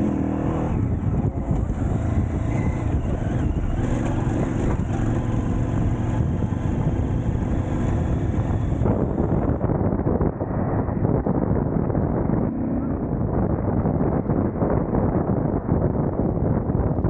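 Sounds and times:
motorcycle engine running: 0.0s - 10.2s.

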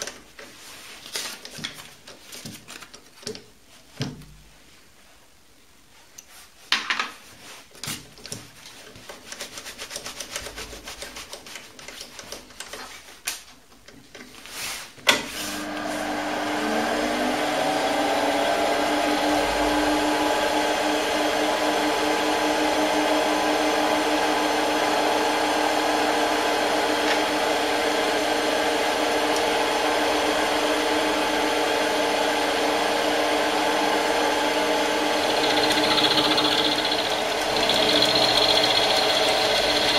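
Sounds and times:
lathe motor whining and humming: 15.5s - 39.9s.

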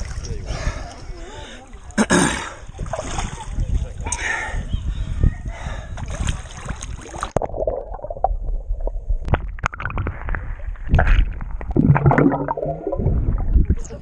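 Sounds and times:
water sloshing: 6.0s - 14.0s
underwater bubbles gurgling: 7.0s - 14.0s.

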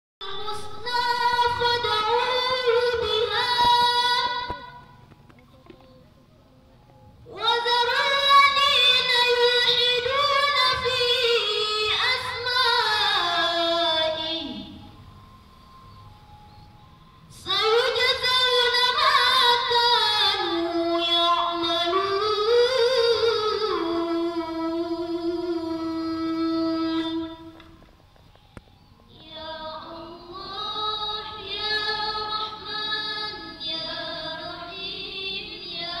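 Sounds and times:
women singing a slow chant: 29.1s - 36.0s.

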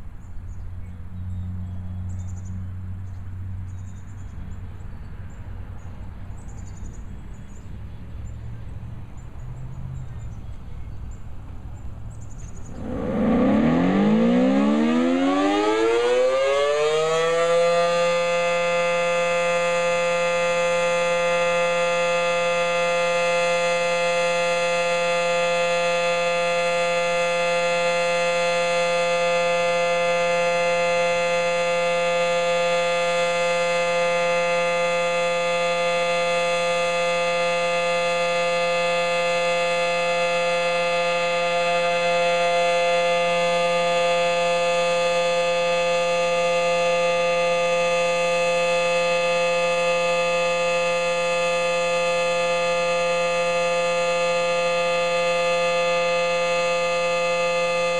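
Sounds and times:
warning siren winding up: 12.5s - 57.9s.

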